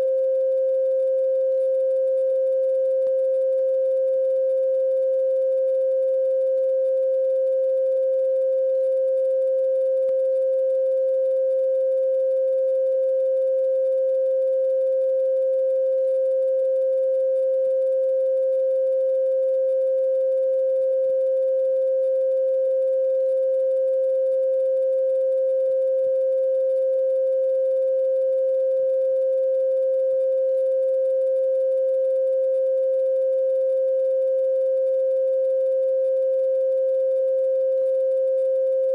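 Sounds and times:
steady pure tone: 0:00.0 - 0:26.2.

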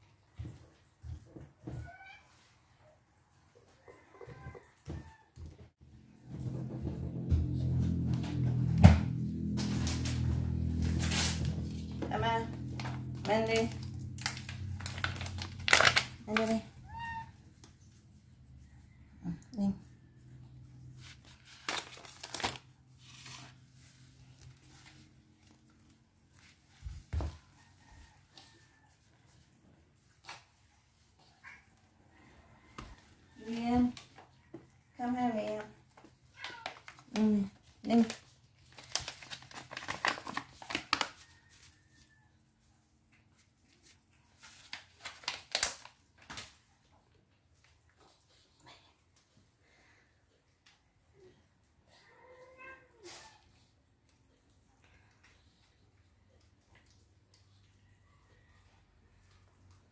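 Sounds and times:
cats crunching dry kibble: 0:07.9 - 0:18.2, 0:20.8 - 0:26.3, 0:35.5 - 0:41.8, 0:43.2 - 0:48.6
plastic packaging crinkling: 0:13.5 - 0:16.7, 0:21.2 - 0:23.6, 0:37.9 - 0:41.3, 0:44.5 - 0:46.6.

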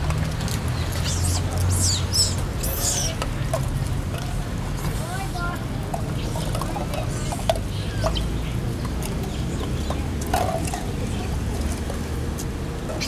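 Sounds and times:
monkeys squeaking and chirping: 0:01.0 - 0:03.2.

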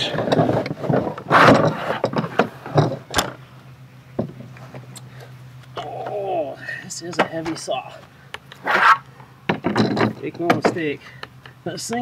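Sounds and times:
plastic scabbard scraping: 0:08.6 - 0:09.0.

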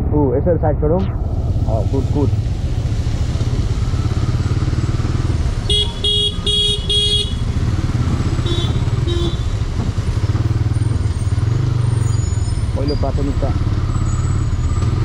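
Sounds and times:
motorcycle riding in traffic: 0:00.0 - 0:15.0
vehicle horn beeping: 0:05.6 - 0:07.5, 0:08.4 - 0:09.6.

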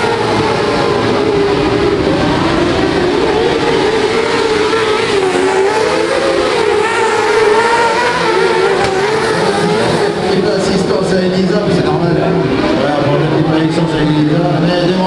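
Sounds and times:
racing car engines revving: 0:00.0 - 0:15.0.

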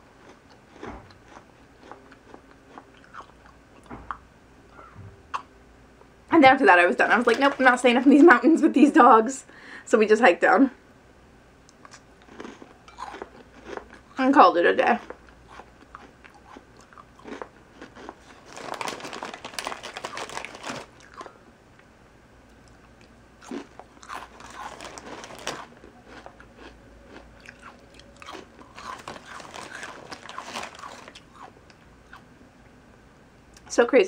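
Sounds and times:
cookie crunching while chewed: 0:00.1 - 0:03.6, 0:11.7 - 0:21.4, 0:22.5 - 0:32.2.

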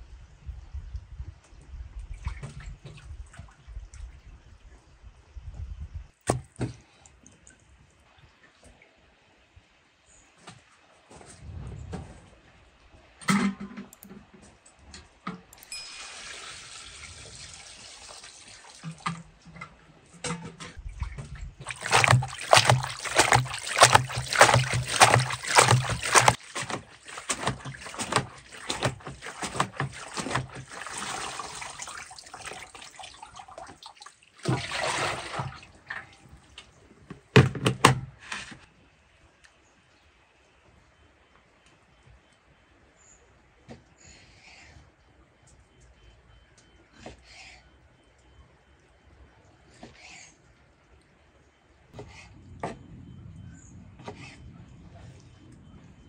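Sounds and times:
water splashing and trickling: 0:01.7 - 0:04.9, 0:15.6 - 0:20.2, 0:20.8 - 0:36.9.

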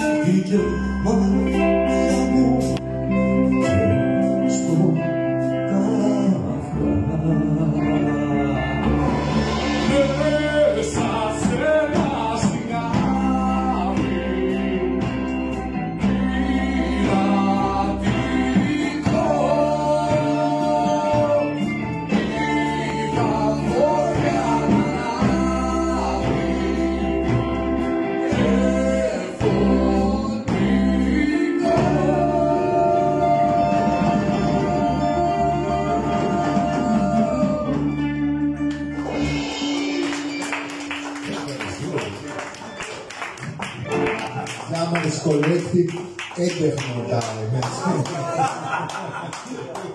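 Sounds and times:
man singing: 0:00.0 - 0:08.9, 0:09.5 - 0:38.0
rock band playing: 0:00.0 - 0:49.9.

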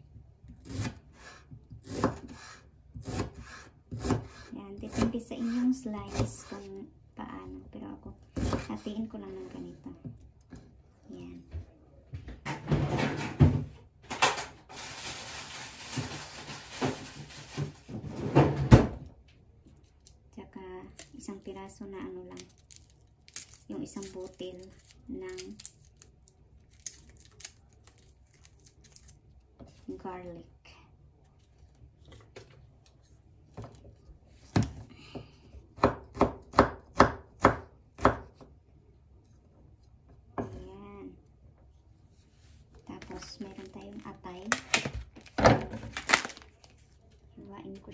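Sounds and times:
knife chopping on wooden board: 0:01.7 - 0:06.6, 0:08.4 - 0:08.7, 0:35.8 - 0:38.5
kitchen knocks and clatters: 0:11.6 - 0:14.8, 0:15.8 - 0:19.0.

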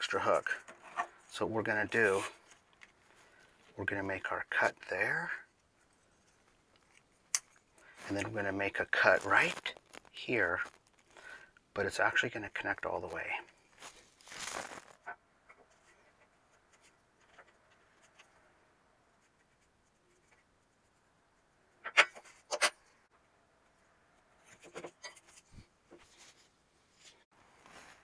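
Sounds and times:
rubbing and handling: 0:05.4 - 0:11.4, 0:12.0 - 0:18.4, 0:24.2 - 0:28.0.

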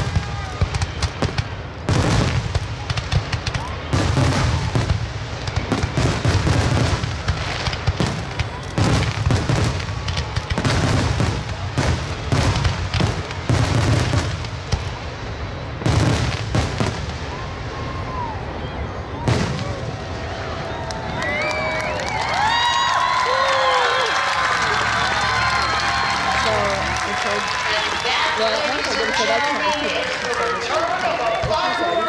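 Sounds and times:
fireworks booms: 0:00.0 - 0:18.3, 0:19.2 - 0:20.5
fireworks crackles: 0:00.0 - 0:18.4, 0:19.2 - 0:32.0.

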